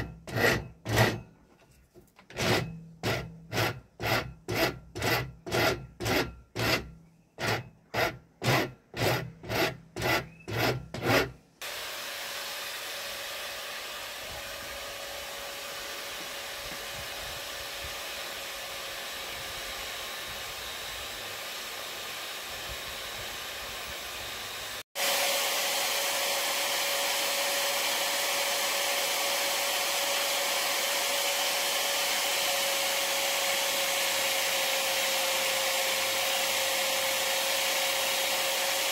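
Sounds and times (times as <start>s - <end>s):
hand tool rasping wood: 0.0s - 1.3s, 2.2s - 11.4s
power drill sanding whine: 7.4s - 38.9s.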